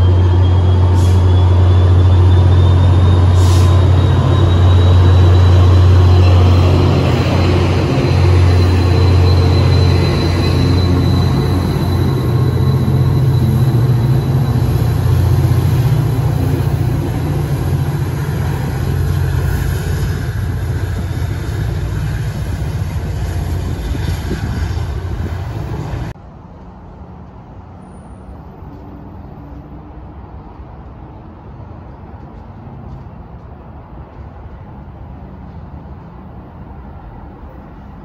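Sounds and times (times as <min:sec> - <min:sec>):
diesel locomotive engine drone: 0:00.0 - 0:38.0.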